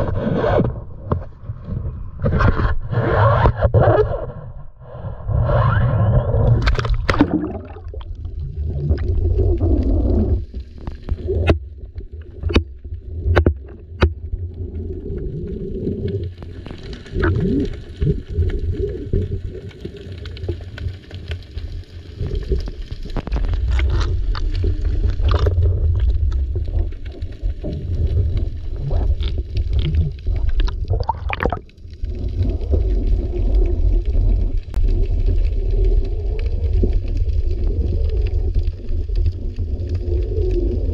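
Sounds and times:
muffled underwater rumble: 0.0 - 40.9
splash into water: 6.6 - 8.2.

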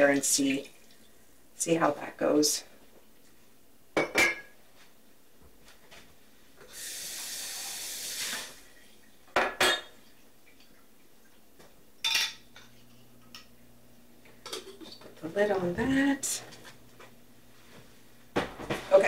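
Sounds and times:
glassware and dishes clinking: 4.0 - 4.6, 9.4 - 10.0, 12.0 - 13.4.

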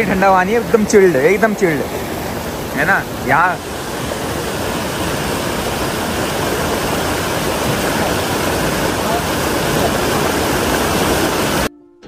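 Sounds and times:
water rushing over rocks: 0.0 - 11.7.

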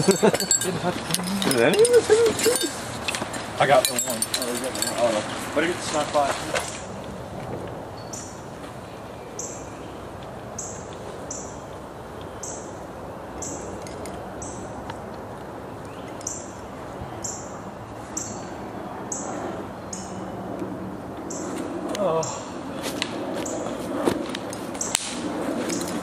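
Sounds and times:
outdoor background noise: 0.0 - 26.0
bird chirping: 8.0 - 8.4, 9.0 - 13.8, 15.8 - 20.4.

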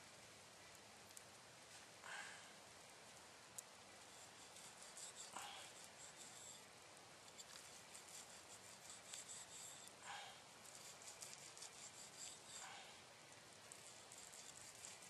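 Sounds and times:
scratching and rustling handling noise: 4.0 - 6.7, 7.3 - 10.0, 10.6 - 12.9, 13.7 - 15.0.

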